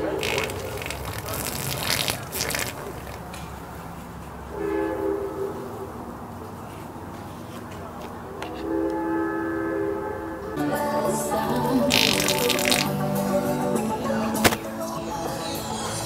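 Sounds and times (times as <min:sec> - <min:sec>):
train horn blasts: 0:04.5 - 0:05.9, 0:08.6 - 0:10.6.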